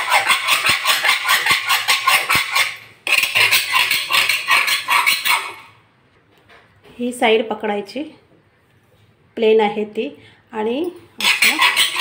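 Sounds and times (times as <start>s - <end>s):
knife scraping along a blade: 0.0s - 5.7s, 11.2s - 12.0s.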